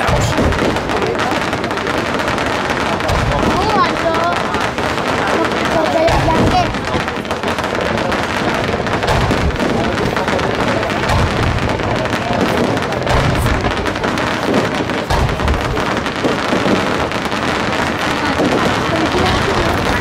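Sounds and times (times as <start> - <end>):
firework shells booming: 0.0 - 20.0
fireworks crackling: 0.0 - 20.0.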